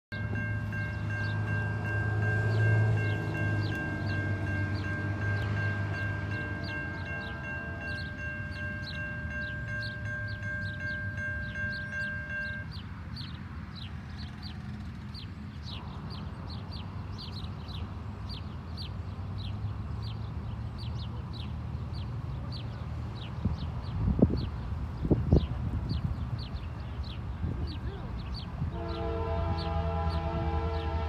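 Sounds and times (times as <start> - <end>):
railroad crossing bell ringing: 0.1 - 13.2.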